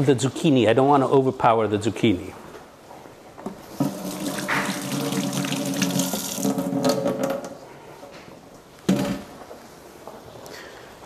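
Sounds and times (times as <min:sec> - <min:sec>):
tap running into sink: 0:03.7 - 0:07.4.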